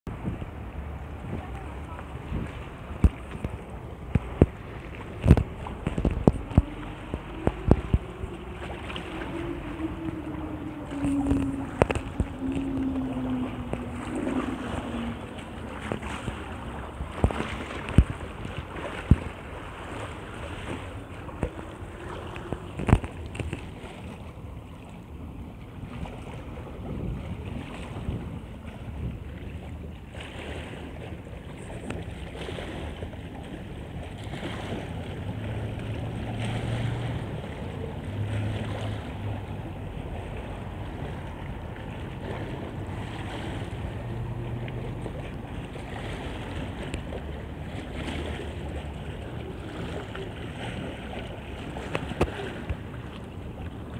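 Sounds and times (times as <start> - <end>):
low hum: 0.1 - 29.2
choppy water splashing: 0.1 - 53.9
wind buffeting microphone: 0.1 - 53.9.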